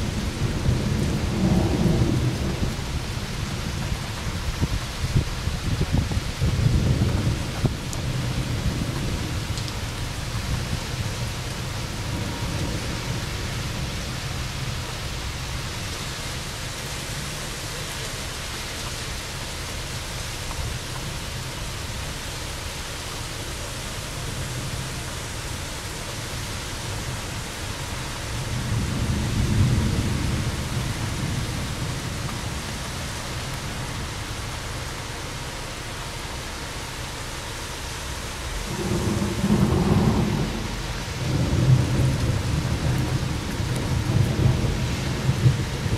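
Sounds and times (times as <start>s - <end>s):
rolling thunder: 0.0s - 14.0s, 28.4s - 32.7s, 38.6s - 45.9s
heavy rain: 0.0s - 45.9s.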